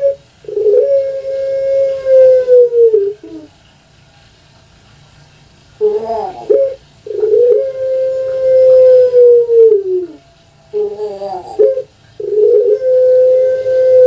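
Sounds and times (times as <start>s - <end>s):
dove cooing: 0.0s - 3.6s, 5.8s - 14.0s.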